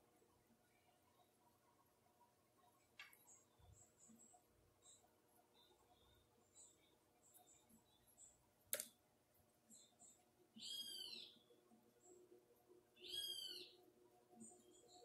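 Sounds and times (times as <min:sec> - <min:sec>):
bird chirping: 0:02.7 - 0:08.4, 0:09.6 - 0:12.3, 0:12.9 - 0:15.0.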